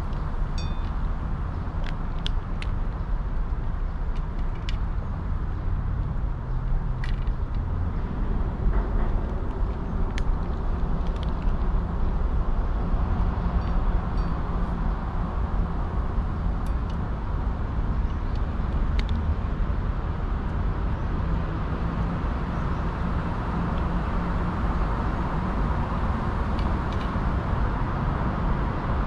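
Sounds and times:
city traffic rumble: 0:00.0 - 0:29.0.

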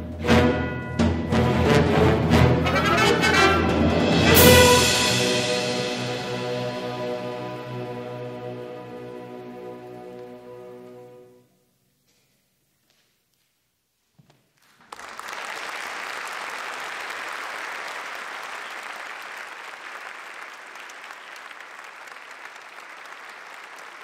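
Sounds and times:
audience applause: 0:14.6 - 0:24.0.

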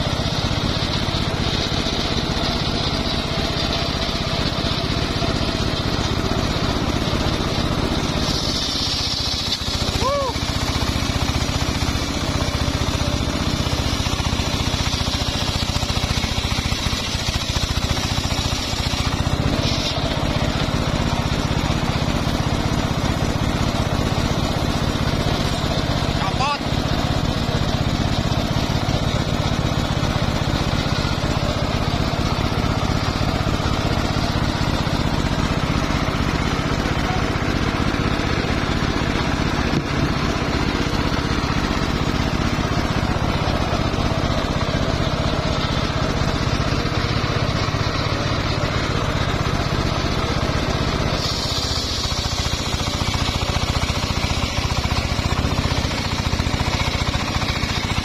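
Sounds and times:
circular saw ripping through log: 0:05.1 - 0:28.8, 0:51.2 - 0:55.2.

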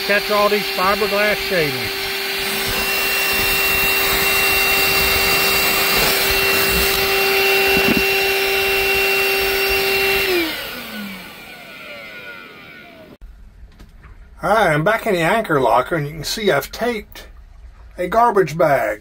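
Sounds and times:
shop vacuum running: 0:00.0 - 0:13.2.

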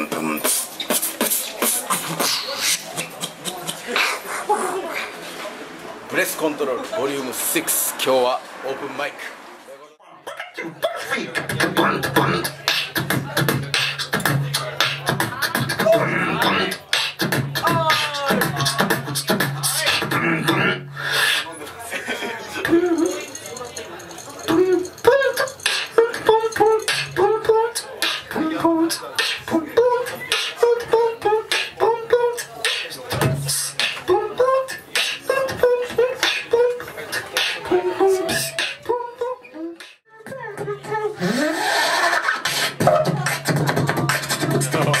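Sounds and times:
beatboxing into microphone: 0:00.0 - 0:05.1, 0:10.3 - 0:21.5, 0:22.6 - 0:23.2, 0:24.5 - 0:45.0.

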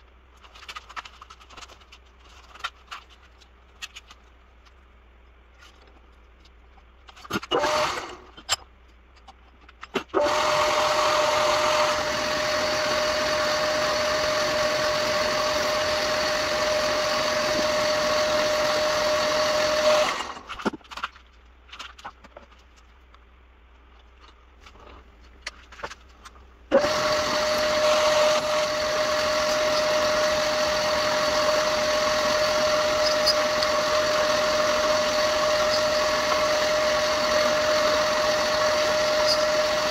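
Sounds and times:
metal lathe whining: 0:10.2 - 0:20.5, 0:26.7 - 0:39.9.

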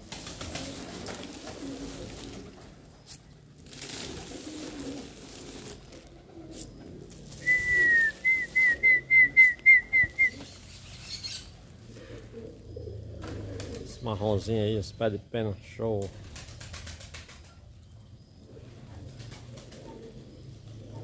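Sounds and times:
pigeon cooing: 0:00.0 - 0:14.1, 0:18.4 - 0:21.0
clear whistle: 0:07.4 - 0:10.4.

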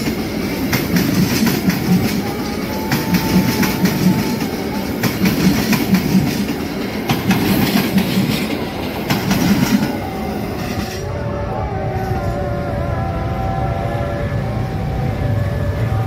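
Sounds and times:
train wheels clattering over rail joints: 0:00.0 - 0:10.0
train rumble: 0:00.0 - 0:16.0.

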